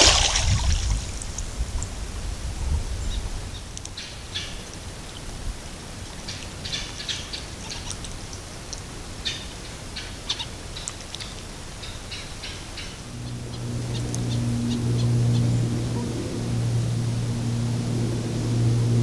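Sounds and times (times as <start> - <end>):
bird calls and chirps: 6.1 - 16.2
low engine drone: 11.5 - 19.0.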